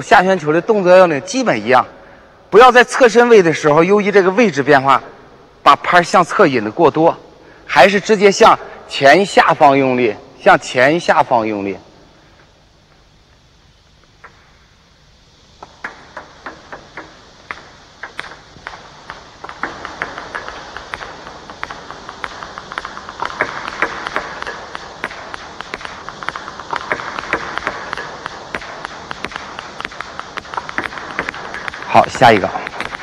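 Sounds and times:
table tennis balls clicking: 0:15.6 - 0:33.0.

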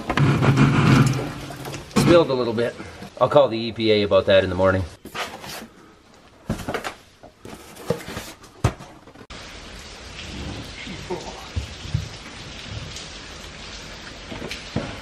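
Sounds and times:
cardboard boxes knocking and scraping: 0:06.4 - 0:09.2.

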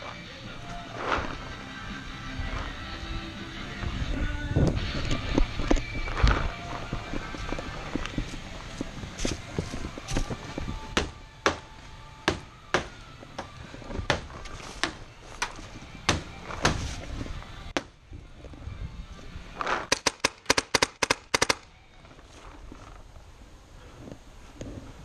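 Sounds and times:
paintball markers firing: 0:19.6 - 0:21.7.

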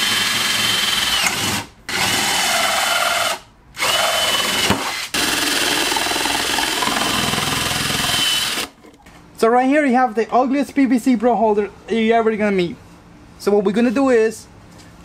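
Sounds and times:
drill motor whining: 0:05.2 - 0:08.7.

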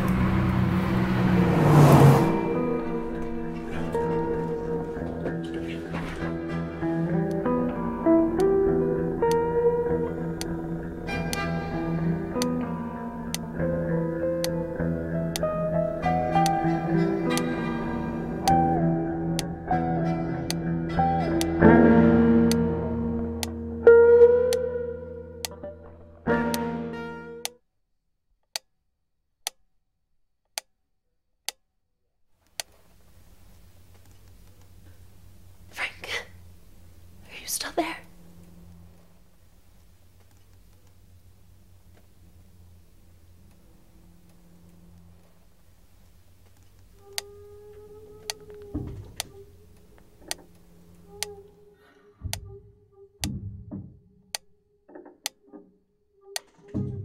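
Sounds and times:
metronome ticking: 0:06.8 - 0:27.6
low hum and hiss: 0:32.7 - 0:51.8.

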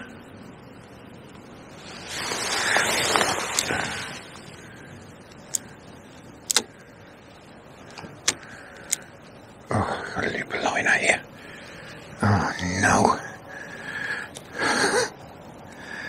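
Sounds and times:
rod and reel clicks: 0:06.5 - 0:06.7.

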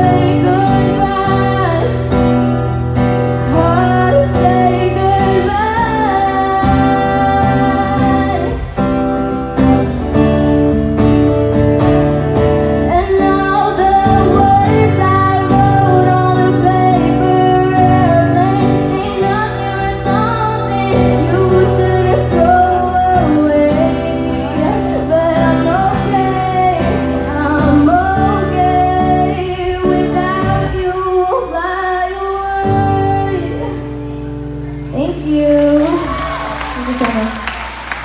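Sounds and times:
woman singing: 0:00.0 - 0:09.3, 0:12.7 - 0:34.2, 0:34.9 - 0:37.6
guitar accompaniment: 0:00.0 - 0:38.0.

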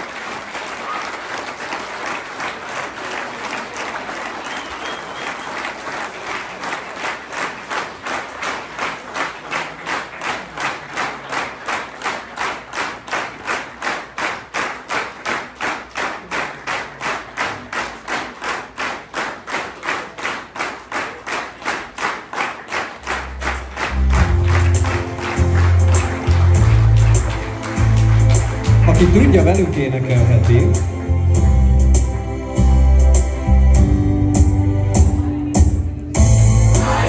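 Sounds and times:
audience clapping in unison: 0:00.0 - 0:31.1, 0:36.7 - 0:37.0.

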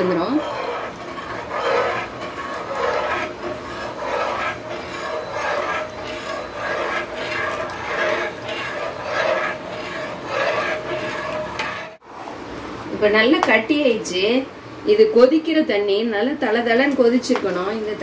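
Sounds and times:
metal spatula scraping pan: 0:00.0 - 0:12.0.

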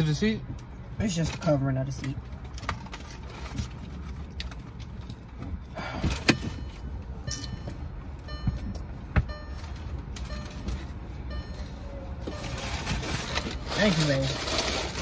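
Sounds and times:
car interior engine hum: 0:00.0 - 0:15.0
knocks of things moved in seats: 0:01.4 - 0:11.0.

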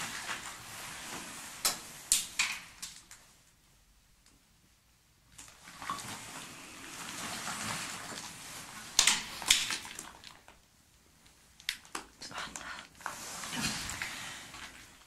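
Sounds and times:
clothing rustle: 0:00.0 - 0:03.5, 0:05.4 - 0:10.7, 0:12.5 - 0:15.0.

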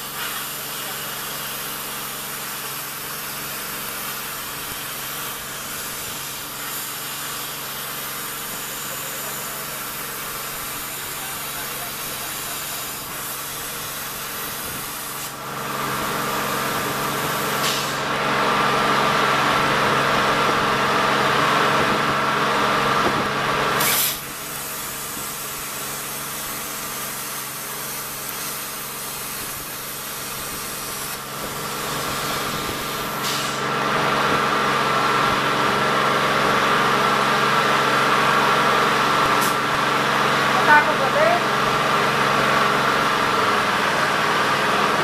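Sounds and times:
plasma arc hissing: 0:00.0 - 0:18.1, 0:23.8 - 0:33.7.

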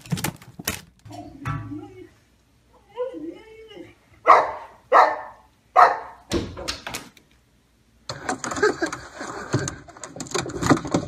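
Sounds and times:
dog barking: 0:04.2 - 0:06.3.

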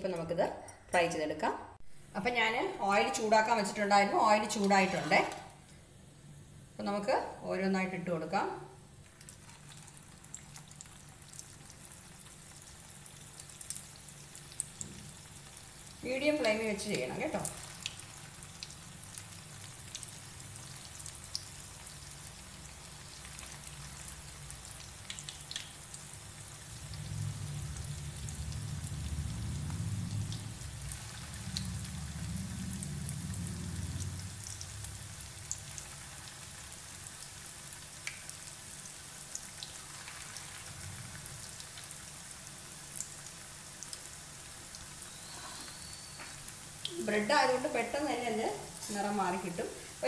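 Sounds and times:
dough deep-frying in oil: 0:01.9 - 0:50.0
low rumble: 0:26.7 - 0:35.5.

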